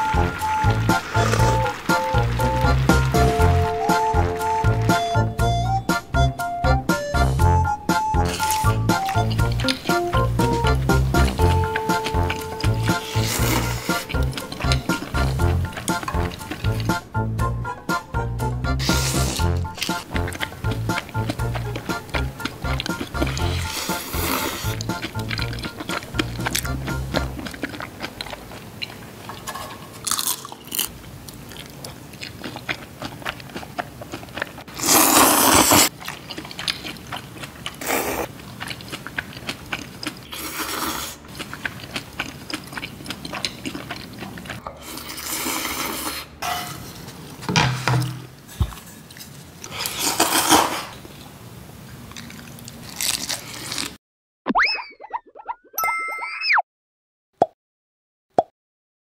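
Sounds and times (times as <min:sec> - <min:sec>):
noodles being slurped: 0:00.0 - 0:04.3, 0:08.2 - 0:17.0, 0:18.8 - 0:30.9, 0:31.7 - 0:46.4, 0:49.1 - 0:51.1, 0:52.2 - 0:54.0
chewing: 0:00.0 - 0:05.2, 0:08.2 - 0:17.0, 0:18.8 - 0:46.2, 0:52.1 - 0:54.0.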